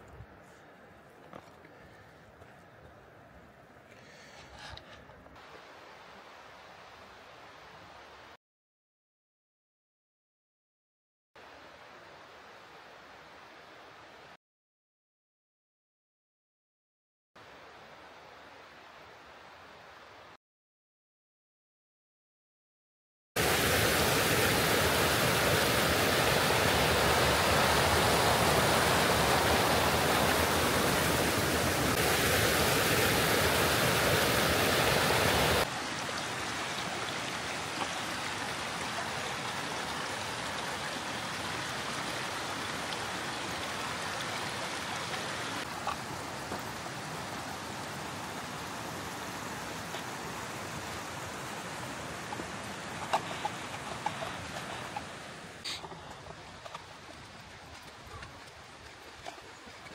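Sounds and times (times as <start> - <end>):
brook rushing over cascade: 23.4 - 59.9.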